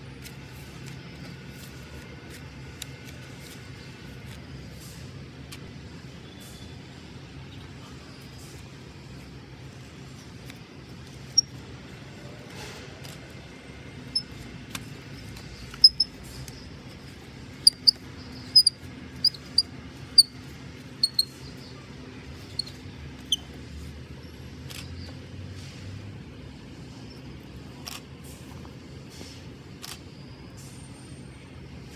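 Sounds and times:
auger squeaking in wood: 17.6s - 21.4s.

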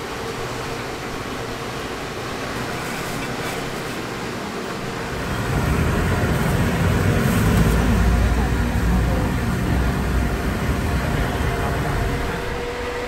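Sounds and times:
street traffic noise: 2.3s - 13.0s
low vehicle rumble: 5.0s - 12.8s.

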